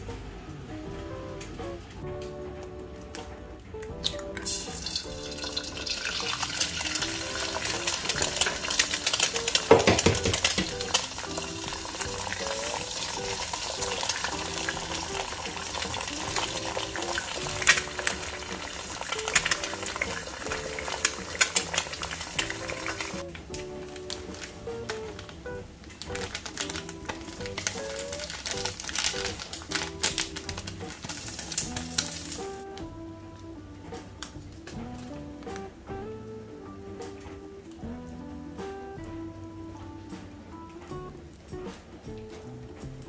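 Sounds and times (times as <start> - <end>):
eggs sizzling in hot oil: 4.0 - 32.8.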